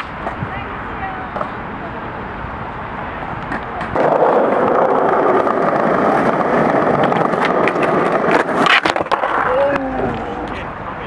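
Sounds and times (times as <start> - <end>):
skateboard wheels rolling on stone: 3.2 - 10.7.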